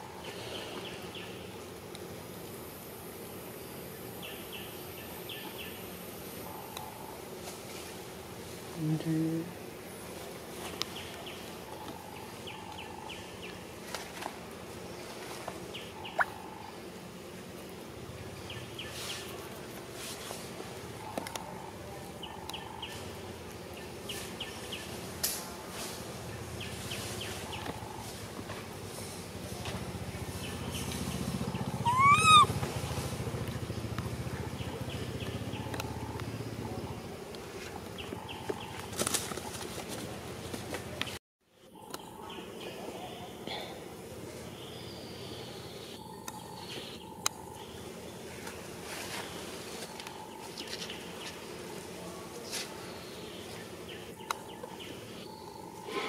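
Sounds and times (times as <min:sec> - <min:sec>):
high falling chirps: 0:31.6 - 0:32.5
sharp rising squeak: 0:31.8 - 0:32.5.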